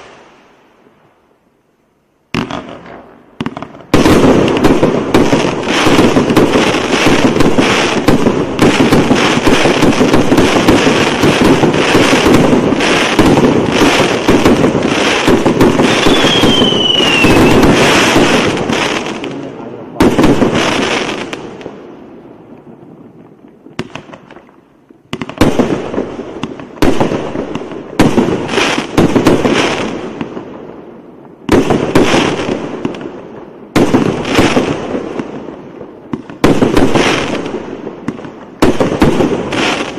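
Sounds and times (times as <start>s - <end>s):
fireworks launches and bursts: 0.0s - 0.6s, 2.3s - 39.9s
falling firework whistle: 15.8s - 18.3s.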